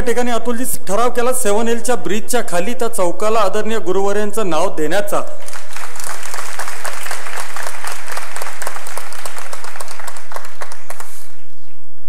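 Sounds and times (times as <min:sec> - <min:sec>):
audience applauding: 0:05.4 - 0:11.4.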